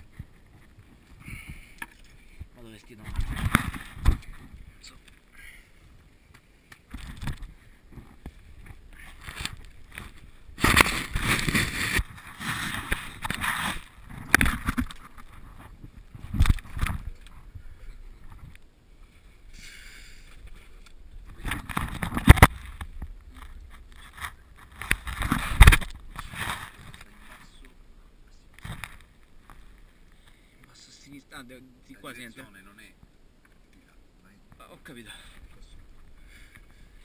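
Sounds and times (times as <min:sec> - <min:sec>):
clothing scraping against rock: 0:07.0 - 0:17.2, 0:21.3 - 0:27.6.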